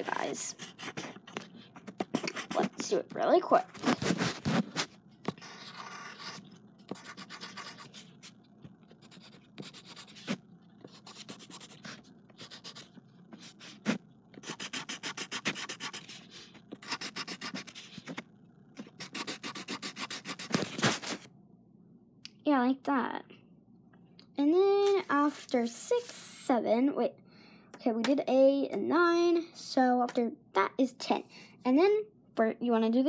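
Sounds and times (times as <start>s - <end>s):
pencil rubbing on paper: 0.0s - 2.9s, 3.7s - 8.3s, 8.9s - 18.2s, 18.8s - 21.3s
pencil tapping: 0.6s - 3.0s, 14.4s - 18.2s.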